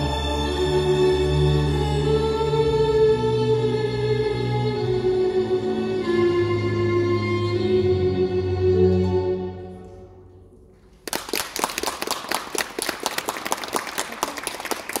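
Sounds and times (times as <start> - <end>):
accompaniment music: 0.0 - 10.7
audience applause: 11.0 - 15.0.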